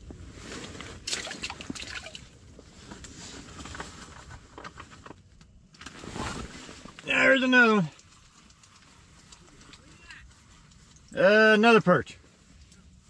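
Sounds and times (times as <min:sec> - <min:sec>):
water splashing: 0:01.1 - 0:02.3
water trickling and dripping: 0:01.1 - 0:02.3, 0:07.9 - 0:11.2.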